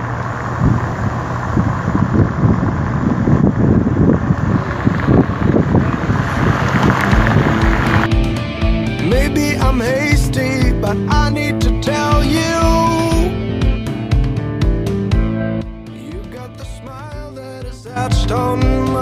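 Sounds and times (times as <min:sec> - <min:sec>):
car engine and road noise: 0:00.0 - 0:19.0
wind buffeting microphone: 0:00.4 - 0:08.1
music: 0:07.4 - 0:19.0.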